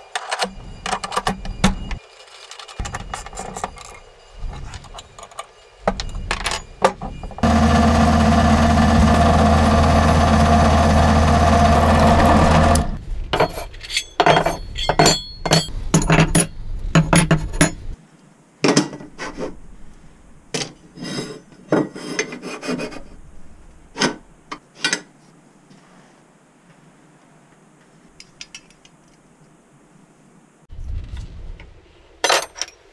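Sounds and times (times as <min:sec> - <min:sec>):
steel parts clinking and knocking: 0:00.1 - 0:07.4, 0:11.9 - 0:18.0, 0:32.2 - 0:32.9
power tool running: 0:07.3 - 0:13.0.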